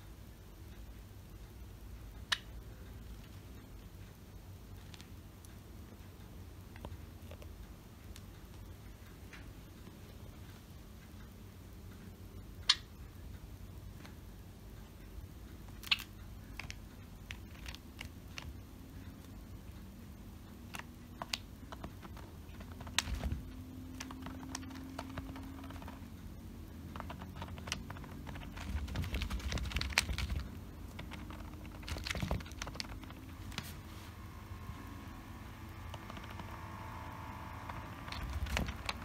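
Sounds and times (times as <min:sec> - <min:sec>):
bird pecking on slippers: 0:20.7 - 0:26.1, 0:26.8 - 0:33.8, 0:35.8 - 0:39.0
rustling: 0:26.9 - 0:34.3, 0:35.8 - 0:39.0.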